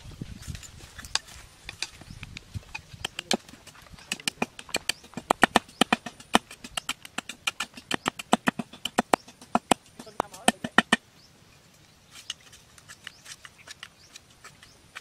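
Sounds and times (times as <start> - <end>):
machete clicking on bamboo: 0.4 - 11.0, 12.1 - 15.0.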